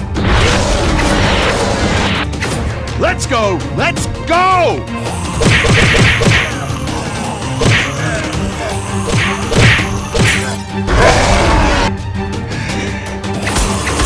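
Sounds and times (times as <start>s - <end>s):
action music: 0.0s - 14.0s
quick whacking hits: 5.4s - 6.5s, 7.6s - 8.0s, 9.1s - 10.5s.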